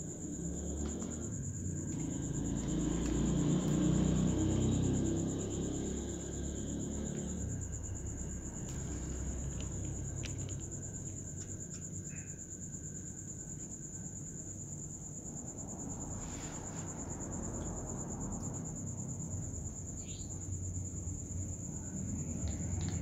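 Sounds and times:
high-pitched insect trill: 0.0s - 23.0s
kittens crunching dry kibble: 8.6s - 12.0s, 22.2s - 23.0s.

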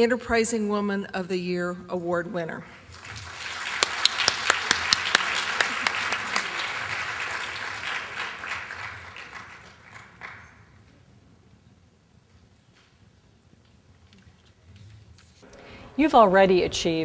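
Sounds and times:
sharp close claps: 2.9s - 10.7s
audience applauding: 2.9s - 10.8s.

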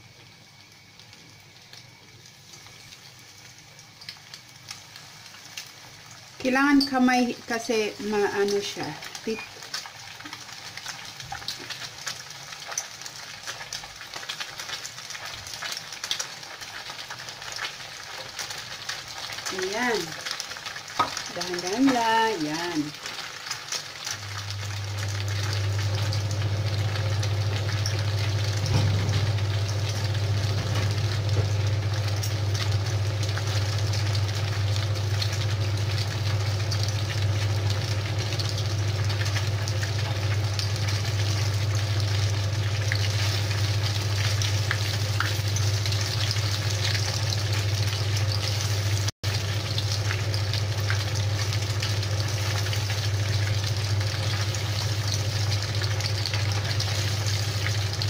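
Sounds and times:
food deep-frying in hot oil: 0.0s - 58.0s
low hum: 24.3s - 58.0s.

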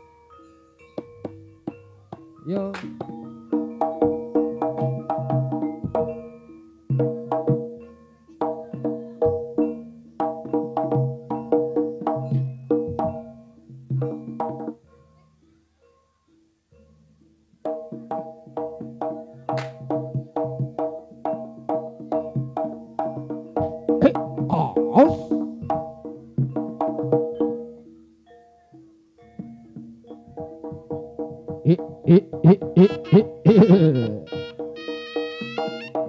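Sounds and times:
gamelan pitched percussion: 0.0s - 36.0s
drum rhythm: 1.0s - 6.3s, 17.9s - 27.5s, 29.7s - 36.0s.

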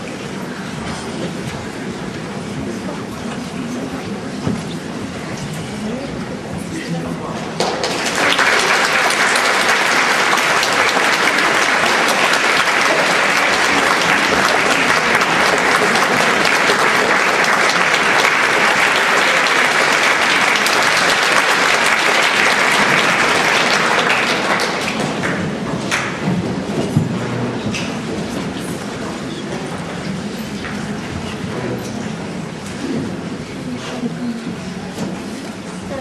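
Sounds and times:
audience applauding: 7.6s - 26.6s.

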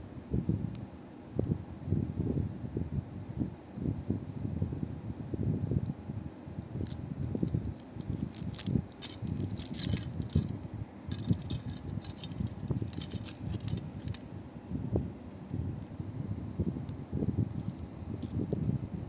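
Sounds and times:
watch bracelet clinking: 6.8s - 14.2s, 17.5s - 18.6s.

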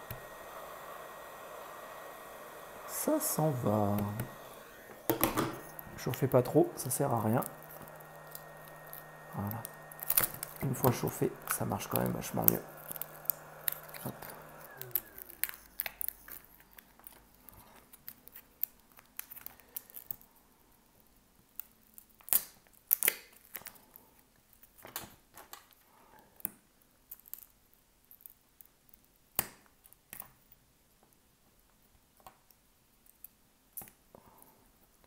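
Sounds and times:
sharp glass cracks: 10.0s - 10.5s.

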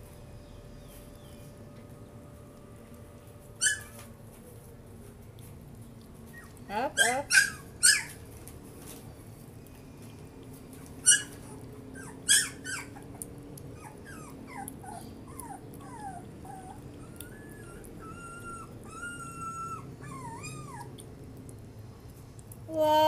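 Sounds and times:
puppy whining: 3.5s - 4.1s, 6.3s - 8.2s, 11.0s - 21.0s
puppy yelping: 3.6s - 4.1s, 6.3s - 8.2s, 11.0s - 21.0s.

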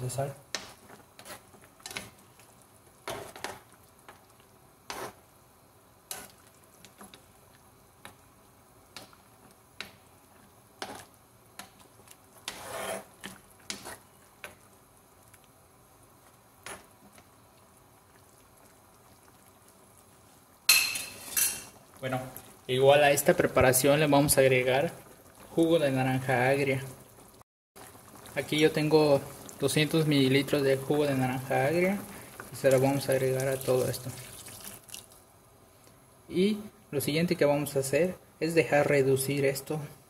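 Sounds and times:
spoon scraping and clinking pan: 20.7s - 21.7s.

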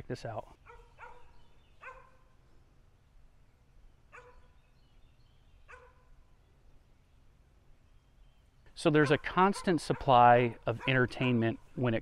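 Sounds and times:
distant dog barking: 0.6s - 2.4s, 4.1s - 4.6s, 5.7s - 6.2s, 9.0s - 11.6s.

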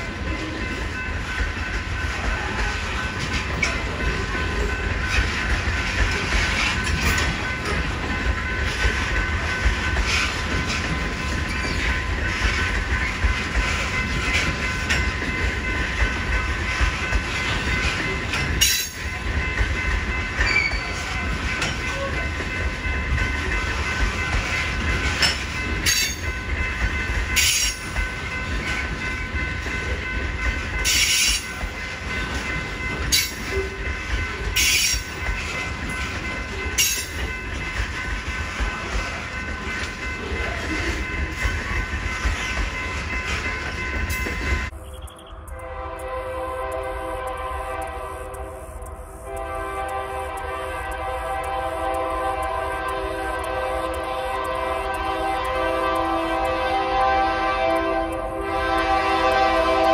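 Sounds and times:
freight cars rolling on rails: 0.0s - 59.9s
locomotive horn: 45.4s - 59.9s.

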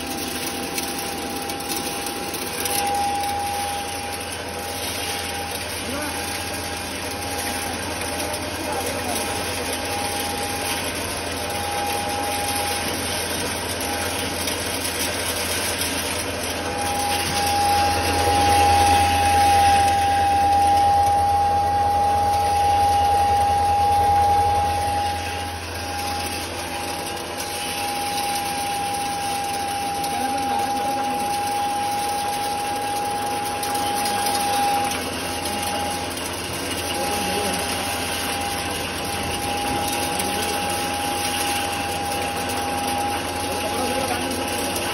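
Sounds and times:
grinder mechanical whine: 0.0s - 44.9s
low hum: 9.8s - 30.4s.

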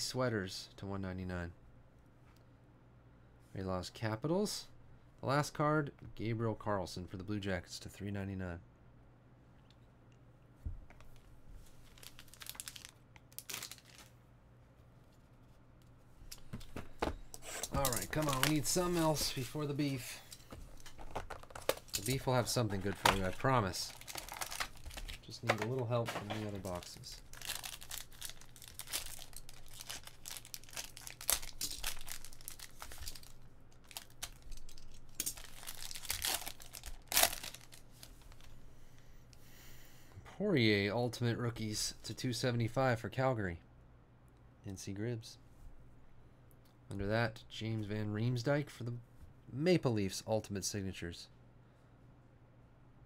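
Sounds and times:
plastic shrink-wrap crinkling and tearing: 11.8s - 14.1s, 17.6s - 19.7s, 20.8s - 25.3s, 26.0s - 38.5s.

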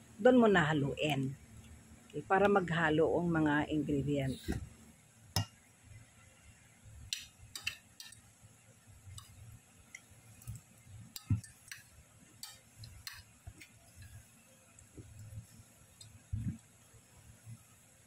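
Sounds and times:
spatula tapping metal bowl: 12.4s - 13.2s.

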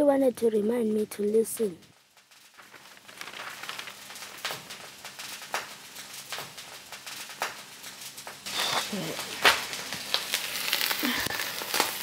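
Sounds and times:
fish frying in a pan: 2.0s - 12.0s.

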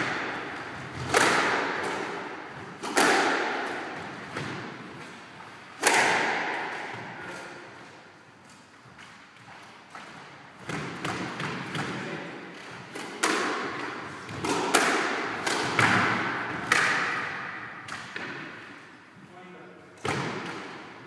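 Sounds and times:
squash ball hits echoing: 0.0s - 7.9s, 9.9s - 19.0s, 20.0s - 21.0s.

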